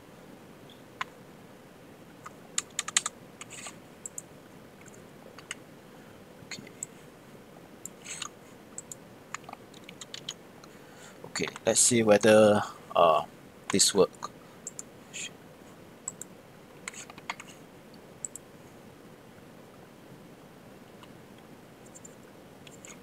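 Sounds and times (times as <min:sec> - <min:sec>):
computer keyboard keystrokes: 0:02.2 - 0:04.2, 0:07.8 - 0:10.4, 0:16.1 - 0:16.3.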